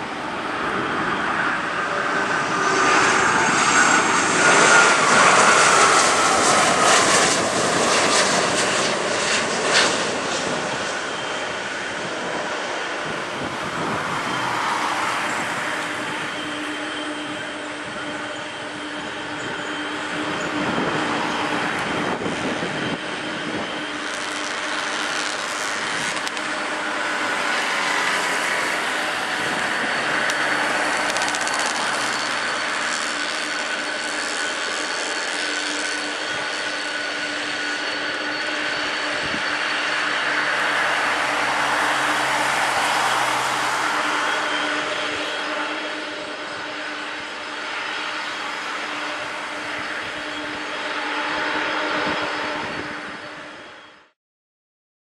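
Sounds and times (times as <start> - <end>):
jet engines roaring and whining: 0.0 - 54.2.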